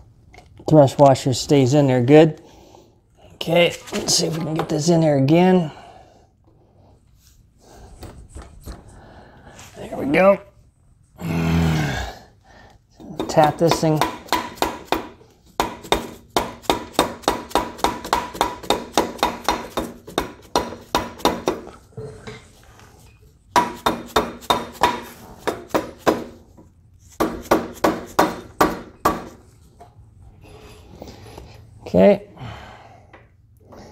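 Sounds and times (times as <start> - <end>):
hammer tapping metal: 13.0 - 21.7, 23.5 - 26.3.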